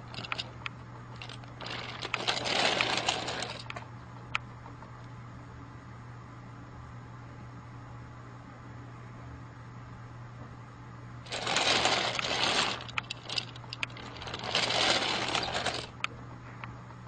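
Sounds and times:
rapid rattling: 0.0s - 0.6s, 1.2s - 3.8s, 11.3s - 16.0s
steady low hum: 0.0s - 17.0s.

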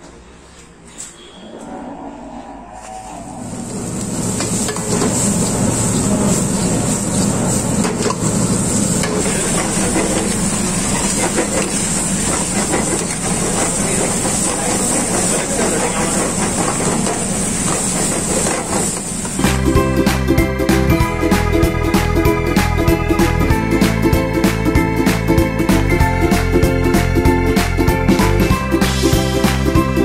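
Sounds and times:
gravy sizzling and bubbling in a pan: 3.8s - 19.4s.

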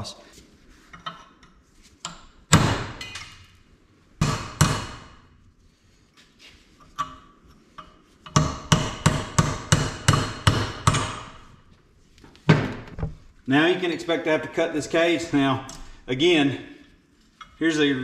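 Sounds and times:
hammer striking chisel on metal: 4.2s - 5.0s, 7.8s - 11.4s.

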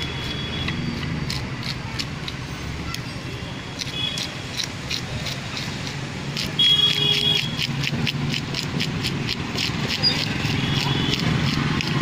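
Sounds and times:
knife scraping fish scales: 0.0s - 2.4s, 3.7s - 12.0s
traffic rumble: 0.0s - 12.0s.

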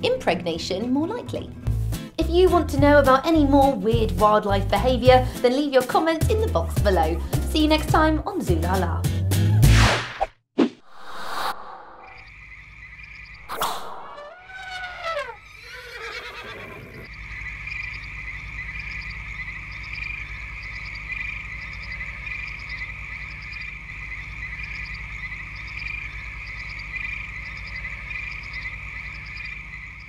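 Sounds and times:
repeating frog call: 12.0s - 30.0s
frogs calling in chorus: 12.2s - 30.0s.

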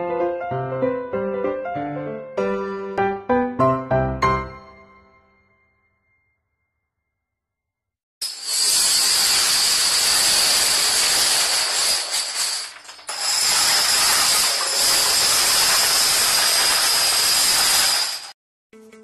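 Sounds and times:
dominoes toppling clatter: 8.3s - 18.4s.

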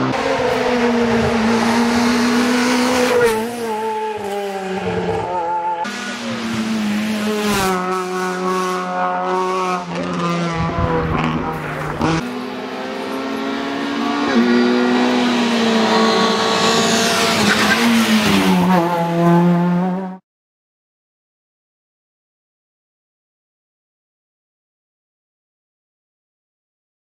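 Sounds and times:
rally car engines revving: 0.0s - 20.2s.

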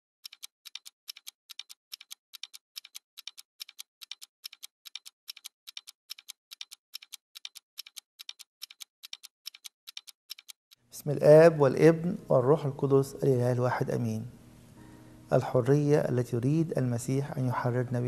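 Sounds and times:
clock ticking: 0.2s - 10.8s.

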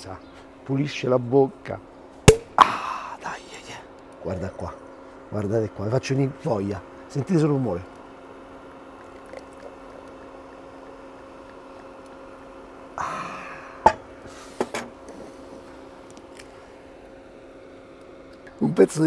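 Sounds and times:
faint steady hum: 0.0s - 19.0s
sparkling wine pouring and fizzing: 8.9s - 11.8s.

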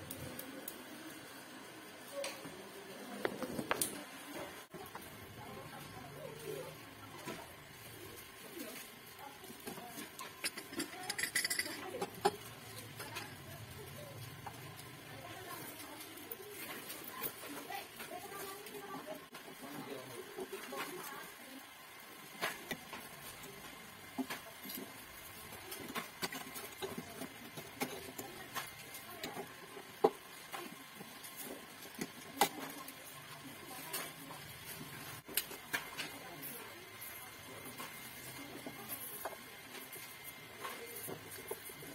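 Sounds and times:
metal burner cap clinking: 10.2s - 12.4s
screwdriver scraping metal ring: 10.2s - 12.4s.

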